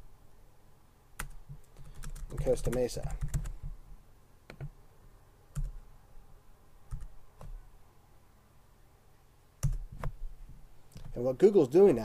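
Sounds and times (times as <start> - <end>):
keyboard and mouse clicks: 4.5 - 4.8, 10.9 - 11.2.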